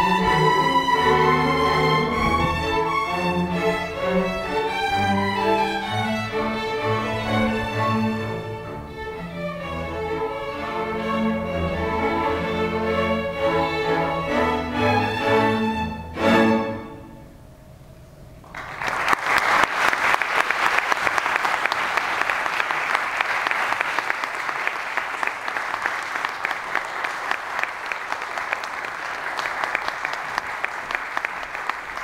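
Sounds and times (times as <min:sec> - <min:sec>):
string orchestra chord: 0:00.0 - 0:17.6
audience applauding: 0:18.5 - 0:32.0.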